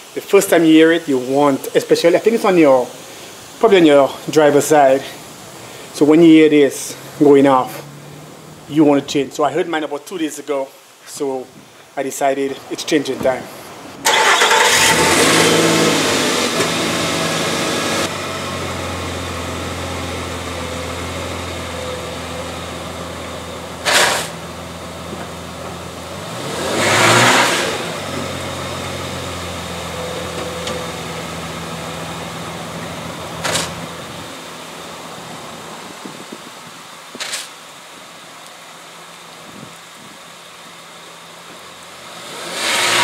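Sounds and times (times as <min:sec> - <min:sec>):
pickup engine starting and idling: 0:14.0 - 0:37.5
short sharp noises: 0:23.8 - 0:24.4.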